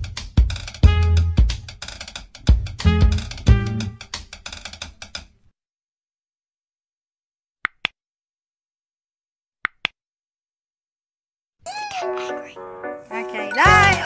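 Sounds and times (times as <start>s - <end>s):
background music with drums: 0.0s - 4.4s.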